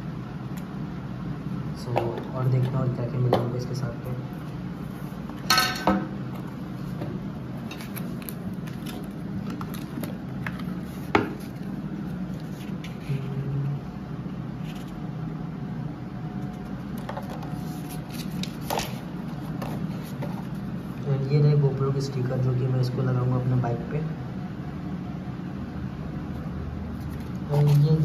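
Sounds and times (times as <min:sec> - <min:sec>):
steady low hum: 0:00.0 - 0:28.0
paper rustling: 0:07.6 - 0:13.3, 0:16.5 - 0:21.0, 0:26.9 - 0:28.0.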